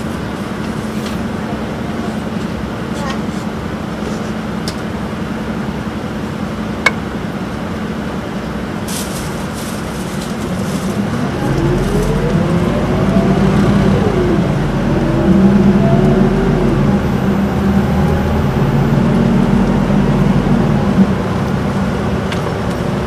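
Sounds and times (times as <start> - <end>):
bus diesel engine: 0.0 - 23.0
drivetrain whine: 5.2 - 23.0.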